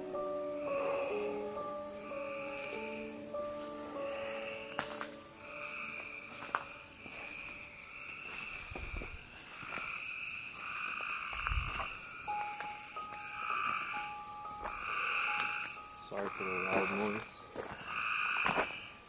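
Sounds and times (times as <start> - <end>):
crickets chirping: 0.0 - 19.0
insect chorus: 0.0 - 19.0
low thuds: 11.3 - 12.0.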